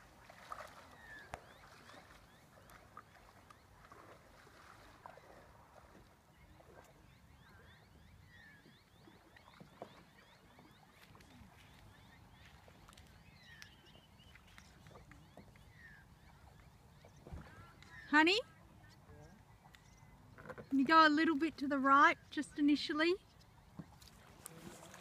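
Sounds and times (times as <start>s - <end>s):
water drips and small splashes: 0.0s - 7.7s, 8.8s - 18.2s.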